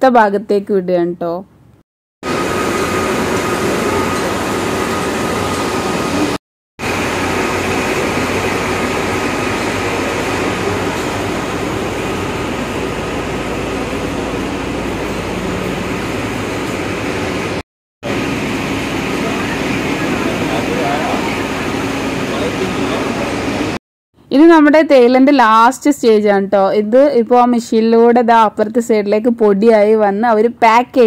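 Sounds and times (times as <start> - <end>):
machinery running: 2.2 - 23.8.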